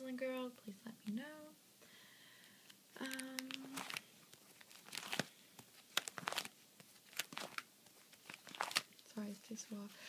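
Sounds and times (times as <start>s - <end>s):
plastic sleeves crinkling: 3.0s - 9.9s.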